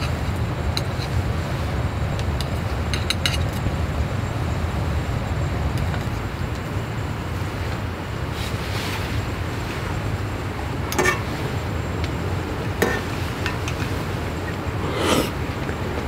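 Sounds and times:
utensils clinking against pot: 0:10.9 - 0:11.3.

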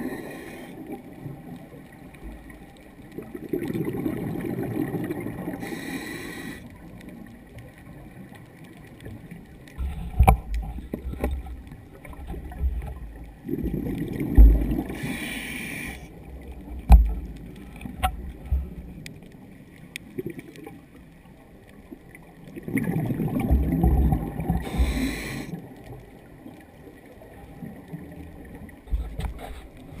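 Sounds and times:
regulator inhale hiss: 0:00.0 - 0:00.8, 0:05.6 - 0:06.8, 0:14.9 - 0:16.2, 0:24.6 - 0:25.6
exhaled bubbles gurgling: 0:00.0 - 0:30.0.

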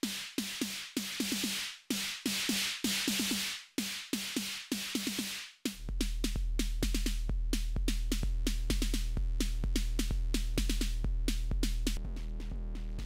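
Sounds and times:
drum machine beat: 0:00.0 - 0:13.0
deep bass boom: 0:11.5 - 0:13.0.

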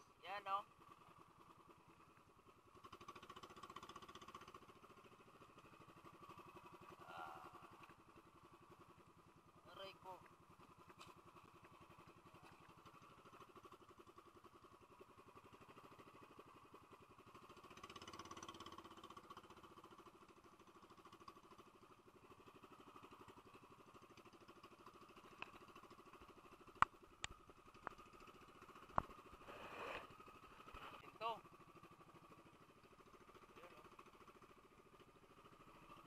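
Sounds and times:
faint boat engine running: 0:00.0 - 0:36.0.

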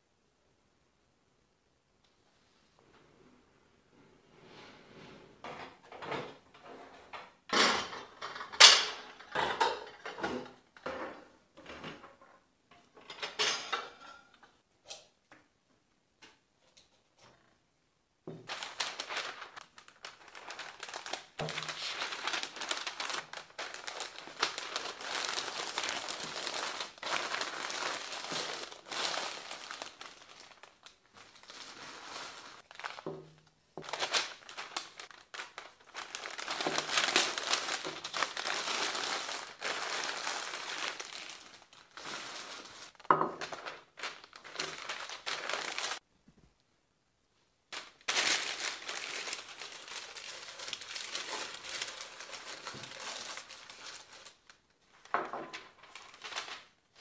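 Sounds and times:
packing paper crinkling: 0:18.3 - 0:46.0, 0:47.7 - 0:57.0.

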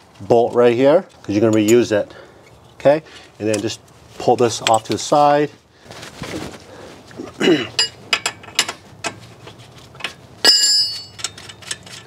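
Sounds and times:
tools clinking on concrete: 0:07.7 - 0:08.7, 0:10.0 - 0:12.0
wrench clanking: 0:07.8 - 0:09.2, 0:10.0 - 0:12.0.

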